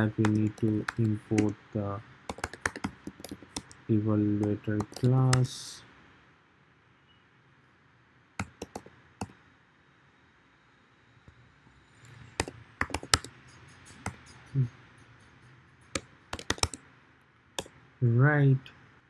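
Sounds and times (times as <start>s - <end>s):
computer keyboard keystrokes: 0.2s - 1.6s, 2.3s - 3.8s, 4.4s - 5.5s, 8.4s - 9.4s, 12.4s - 13.4s, 16.0s - 16.8s.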